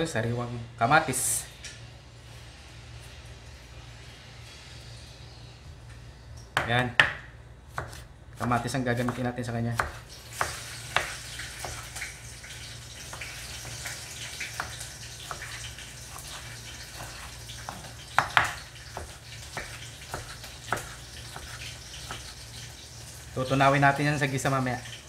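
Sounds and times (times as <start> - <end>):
knife cutting on wooden board: 6.6 - 9.2, 9.8 - 11.9, 14.5 - 22.3.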